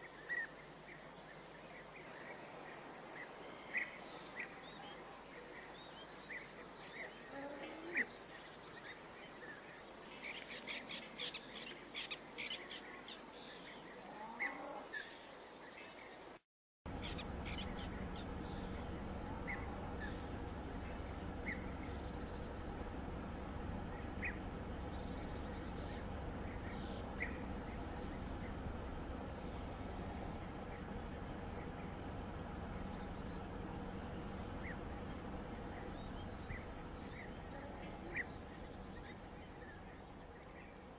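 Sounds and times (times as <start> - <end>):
steady low hum: 16.9 - 40.9.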